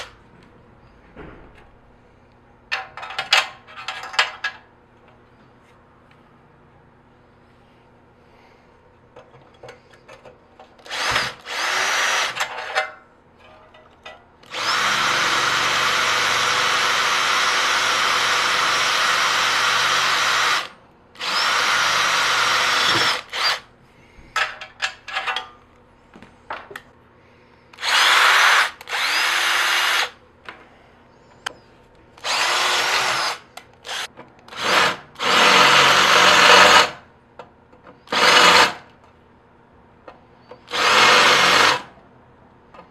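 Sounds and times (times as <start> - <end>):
electric drill boring into metal: 10.9 - 12.5, 14.5 - 23.6, 27.8 - 30.2, 32.2 - 37.0, 38.1 - 38.8, 40.7 - 41.8.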